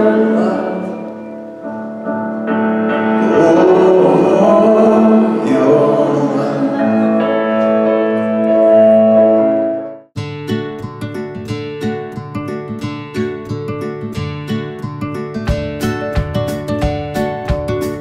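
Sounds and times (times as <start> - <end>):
worship band playing: 0.0 - 9.8
singer holding long notes: 0.0 - 9.9.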